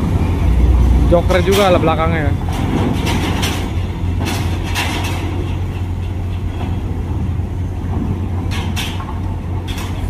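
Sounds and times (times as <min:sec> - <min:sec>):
diesel engine idling: 0:00.0 - 0:10.0.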